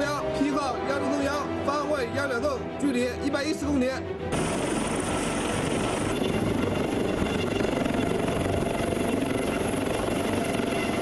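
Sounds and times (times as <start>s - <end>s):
helicopter rotor and engine: 3.5s - 11.0s.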